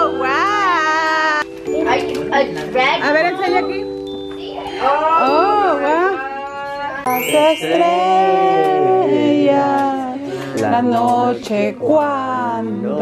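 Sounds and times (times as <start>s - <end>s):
instrumental backing: 0.0s - 11.3s
person singing: 4.5s - 13.0s.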